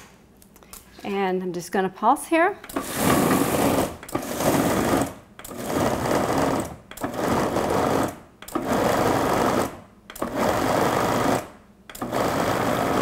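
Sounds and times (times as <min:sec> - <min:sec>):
food processor pulsing: 0:02.7 - 0:13.0.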